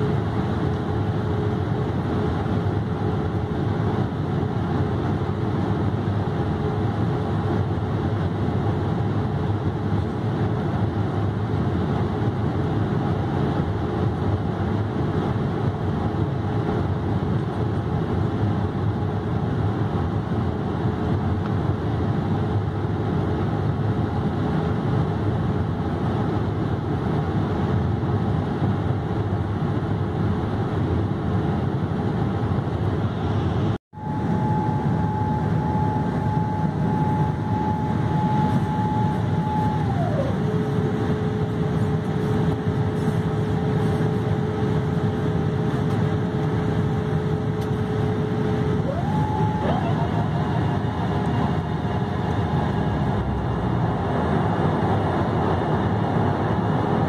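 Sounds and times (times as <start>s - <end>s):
airplane cabin roar: 0.0s - 57.0s
thin steady whine: 33.2s - 57.0s.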